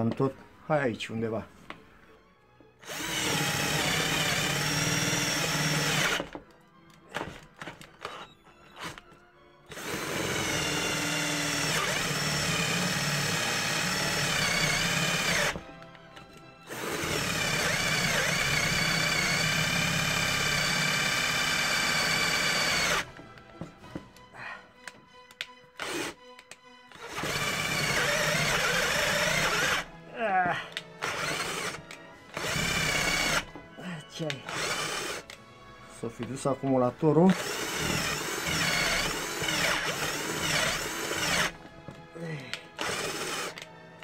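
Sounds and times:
cordless drill boring into wood: 2.8 - 6.4, 7.1 - 15.7, 16.7 - 23.2, 25.8 - 26.3, 26.9 - 30.0, 30.8 - 33.5, 34.2 - 35.4, 36.6 - 41.6, 42.4 - 43.7.

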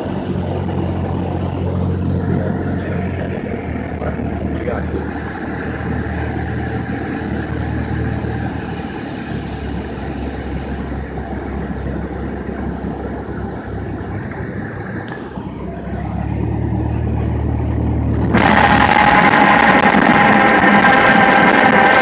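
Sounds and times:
propeller plane engine drone: 0.0 - 22.0.

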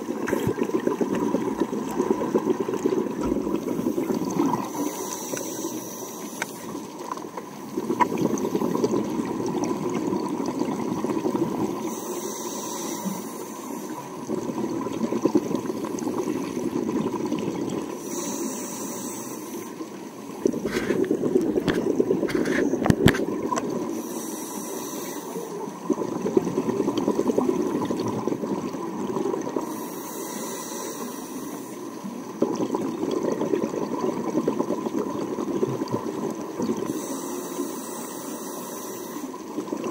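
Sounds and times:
exhaled air bubbling underwater: 0.0 - 39.9
regulator hiss on inhale: 3.5 - 7.0, 11.7 - 14.2, 17.9 - 22.8, 23.8 - 25.8, 29.6 - 32.2, 36.8 - 39.8.

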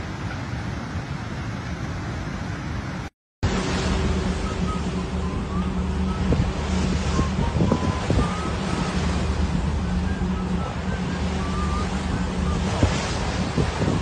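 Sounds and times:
sea waves: 0.0 - 14.0
wind buffeting microphone: 2.8 - 14.0
low hum: 3.4 - 14.0
faint wavering whistle tones: 4.0 - 14.0.

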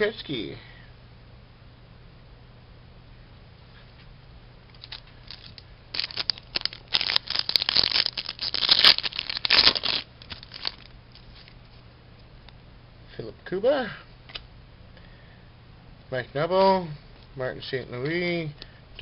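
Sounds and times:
foil wrapper crinkling: 4.7 - 11.6.

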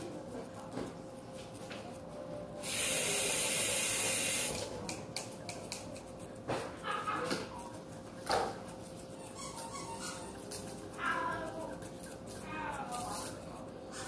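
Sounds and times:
steady hiss: 2.6 - 4.6.

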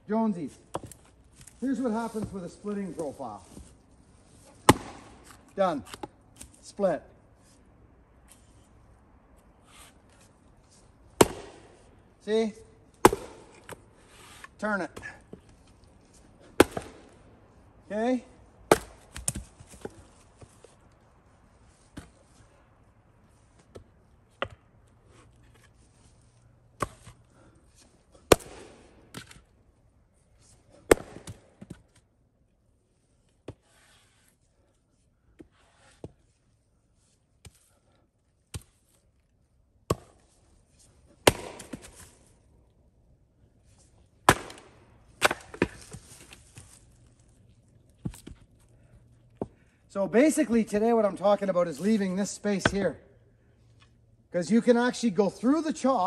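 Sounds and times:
axe chopping wood: 4.6 - 6.6, 11.2 - 11.8, 13.0 - 13.8, 16.4 - 17.2, 18.7 - 20.0, 23.7 - 24.7, 26.8 - 27.2, 28.2 - 29.4, 30.8 - 31.9, 38.5 - 38.8, 39.9 - 40.3, 41.2 - 42.2, 44.2 - 46.8, 52.6 - 52.9.

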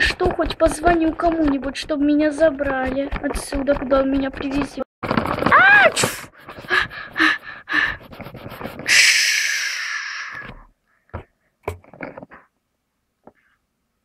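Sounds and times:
girl breathing heavily: 6.0 - 11.6
hissing exhale: 8.8 - 10.6.

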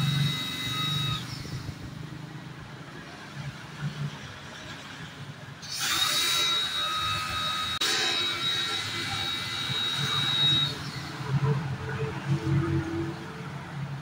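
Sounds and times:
pressure washer whine: 0.0 - 1.9, 5.6 - 11.6.

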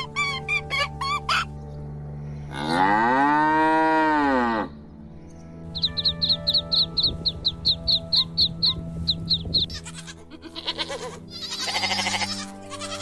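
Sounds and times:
background music: 0.0 - 13.0
goats bleating: 9.7 - 13.0.

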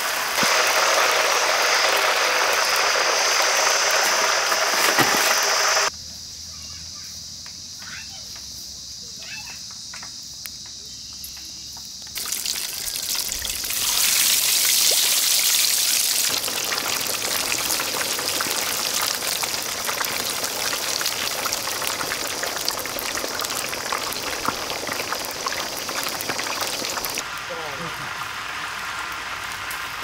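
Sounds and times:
chicken sizzling in hot oil: 0.0 - 5.9, 12.2 - 30.0.

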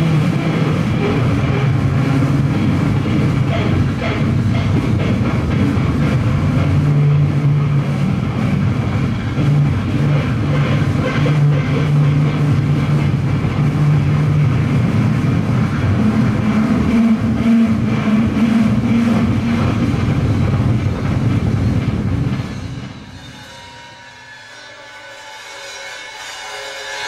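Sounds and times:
distorted electric guitar droning: 0.0 - 20.1
cymbals washing: 22.4 - 27.0.

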